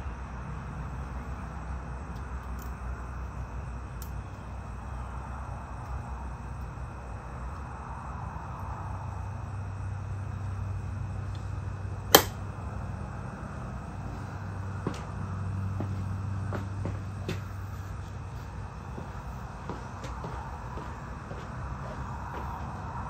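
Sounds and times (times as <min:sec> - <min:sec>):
low hum: 0:00.0 - 0:23.0
parts handled by hand: 0:12.1 - 0:12.4, 0:14.8 - 0:20.8
sharp click: 0:12.1 - 0:12.4.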